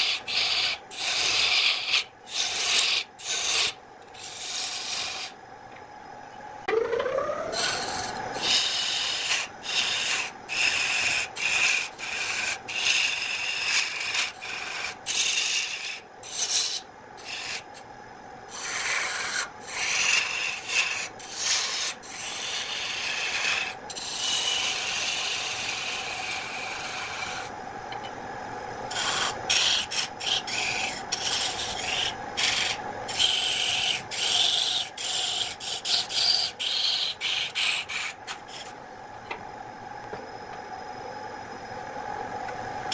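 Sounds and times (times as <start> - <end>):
wood lathe humming: 0.0 - 5.3, 7.4 - 17.6, 18.5 - 27.5, 28.9 - 38.7
gouge scraping spinning wood: 0.0 - 5.4, 7.5 - 17.8, 18.5 - 27.5, 28.9 - 38.7.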